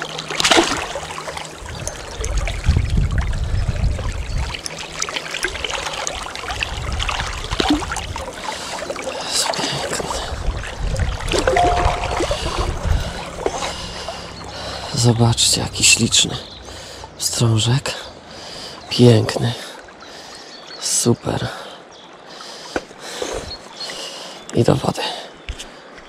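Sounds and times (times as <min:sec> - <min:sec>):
river water splashing: 0:00.0 - 0:02.8, 0:04.2 - 0:17.4
low rumble: 0:11.4 - 0:13.4.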